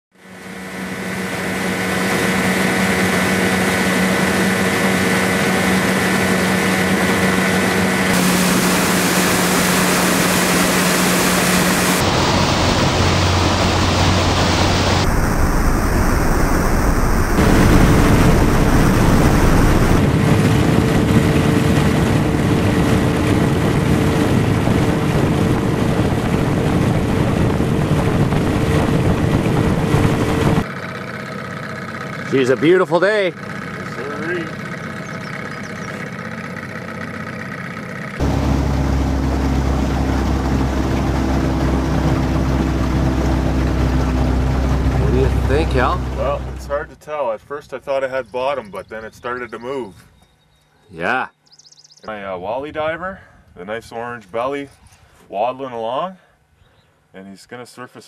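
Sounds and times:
outboard motor running: 0.2 - 46.8
rushing water: 2.0 - 20.1, 38.2 - 46.5
wind buffeting microphone: 8.1 - 30.6.

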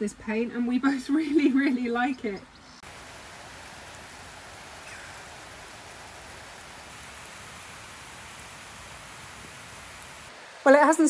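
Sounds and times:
rain on puddle and grass: 2.8 - 11.0.

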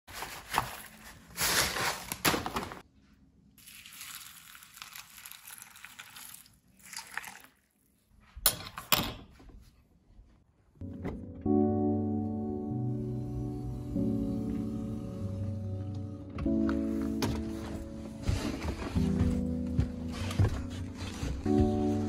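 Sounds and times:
cereal rattling into bowl: 3.6 - 7.4
milk pouring and splashing: 3.6 - 7.9.

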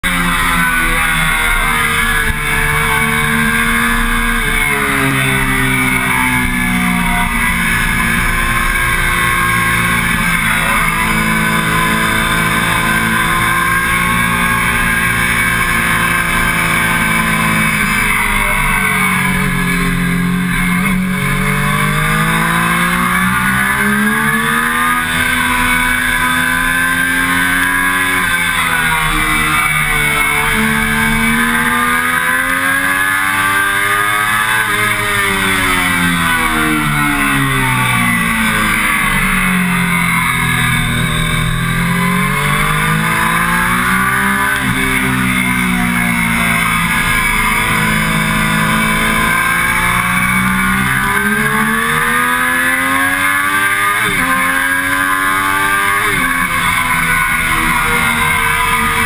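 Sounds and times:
motorcycle engine running hard: 0.0 - 59.0.

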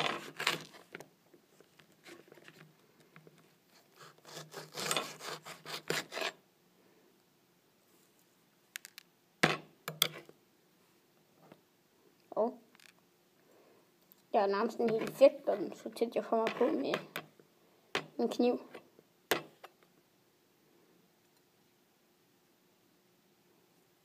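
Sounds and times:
knife scraping against plate: 4.0 - 6.4.

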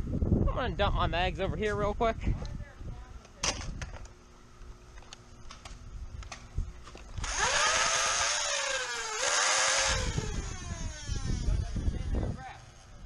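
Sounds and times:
flywheel motor whine: 7.0 - 13.0
toy blaster firing full-auto: 7.2 - 11.5.

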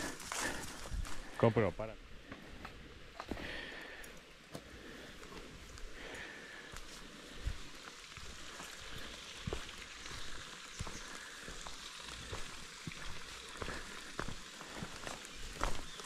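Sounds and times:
footsteps crunching on trail: 0.0 - 16.0.

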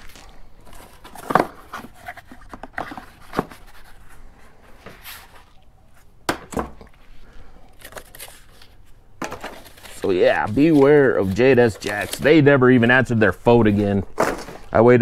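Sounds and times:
cardboard rustling and scraping: 0.0 - 6.2, 7.8 - 14.8.

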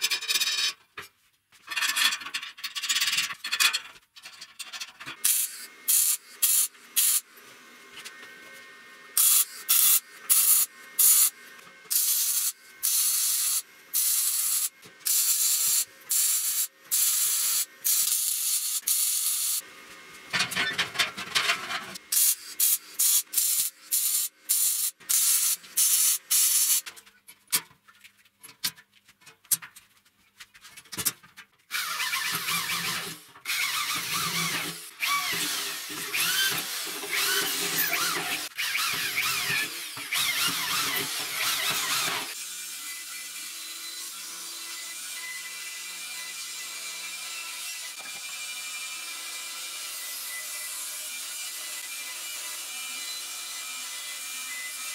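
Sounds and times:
welder welding steel: 5.1 - 8.1, 9.1 - 26.9.

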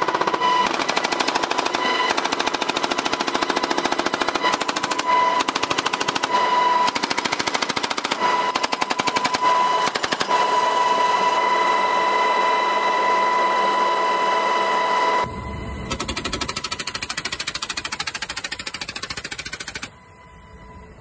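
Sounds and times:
machine gun firing bursts: 0.0 - 10.6, 15.9 - 19.9
helicopter high whine: 0.0 - 21.0.

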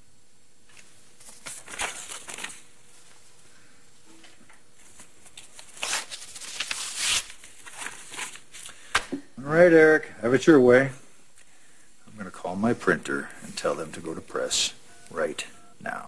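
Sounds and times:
paper rustling: 0.7 - 3.1, 4.8 - 8.9.

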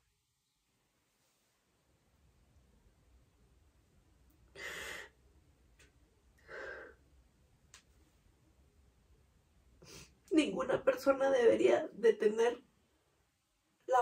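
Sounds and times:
sharp tearful breaths: 4.5 - 5.2.

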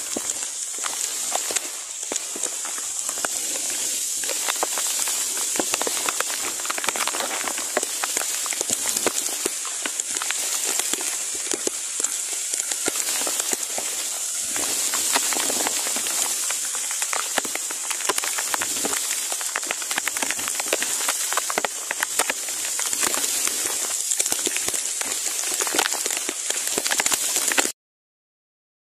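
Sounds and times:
heavy rain on leaves: 0.0 - 27.8.

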